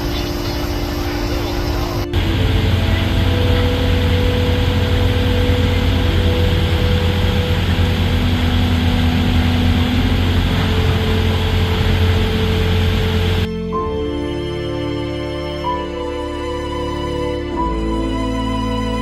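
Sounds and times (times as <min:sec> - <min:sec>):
large engine idling: 0:00.0 - 0:13.5.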